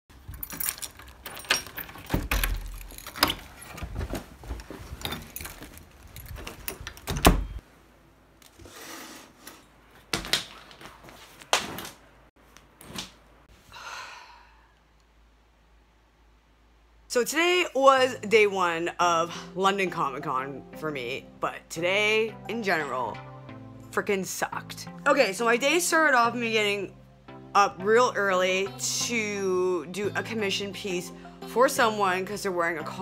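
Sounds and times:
handling knocks and clicks: 0:00.1 - 0:07.6
keys jangling: 0:00.2 - 0:03.9, 0:04.9 - 0:07.6.

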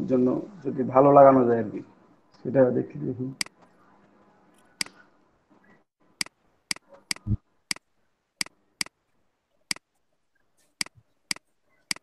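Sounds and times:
mouse button clicking: 0:06.2 - 0:07.8.

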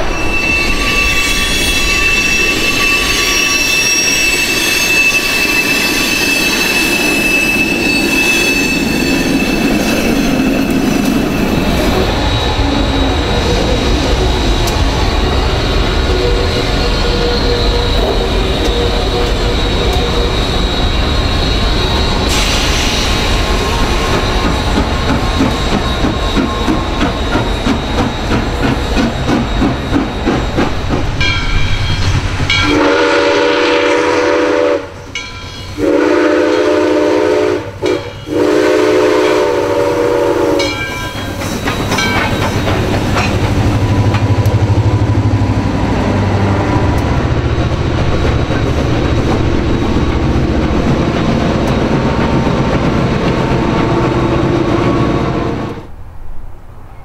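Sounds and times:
steam locomotive rumble and hiss: 0:00.0 - 0:56.9
passing train rumble: 0:00.0 - 0:57.0
steam whistle: 0:32.6 - 0:35.0, 0:35.8 - 0:41.0.

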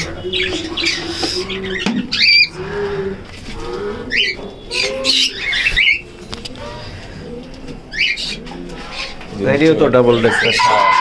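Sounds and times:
cockatiels squawking: 0:00.0 - 0:02.6, 0:04.1 - 0:07.0, 0:07.9 - 0:09.2, 0:10.1 - 0:11.0
birds cooing: 0:00.0 - 0:11.0.

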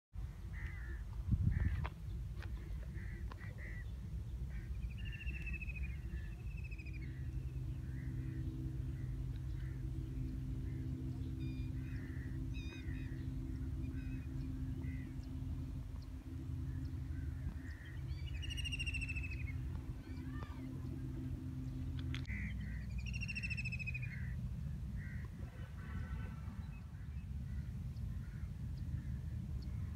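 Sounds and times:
bird calls: 0:00.2 - 0:29.9
low hum: 0:00.2 - 0:29.9
steady low rumble: 0:00.2 - 0:29.9
drawn-out falling call: 0:04.5 - 0:21.6, 0:22.2 - 0:24.4.

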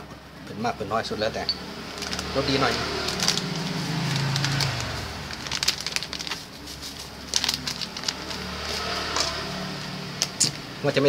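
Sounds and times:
plastic packet crinkling: 0:01.8 - 0:10.5.

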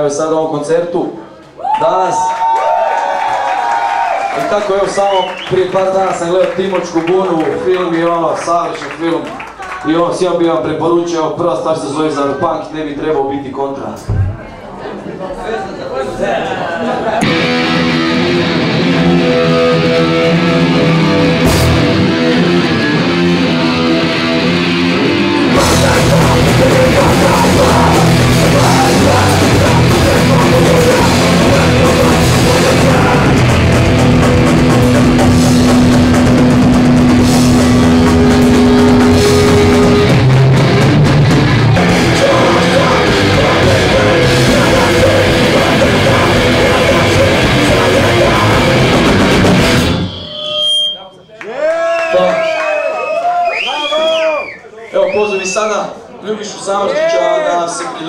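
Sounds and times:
drums: 0:17.2 - 0:50.4
distorted guitars: 0:17.2 - 0:51.0.

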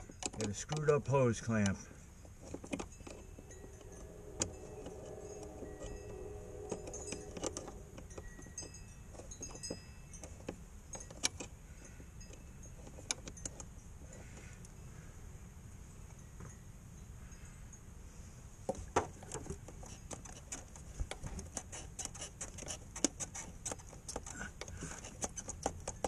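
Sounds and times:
metallic clicks of tools: 0:06.7 - 0:11.6, 0:12.2 - 0:13.8.

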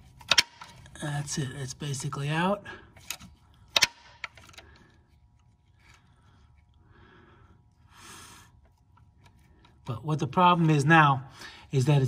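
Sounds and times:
soft handling noises: 0:04.2 - 0:06.8.

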